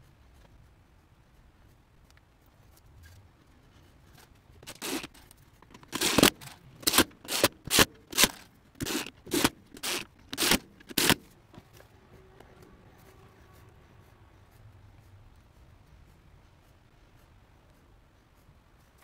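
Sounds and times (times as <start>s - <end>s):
scraping strokes on wood: 3.0s - 15.1s.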